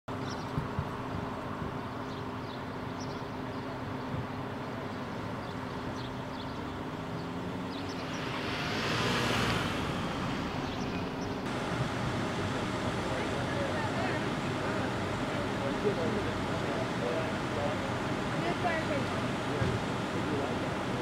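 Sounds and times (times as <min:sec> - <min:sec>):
low engine hum: 0:00.1 - 0:21.0
car driving past: 0:06.4 - 0:12.2.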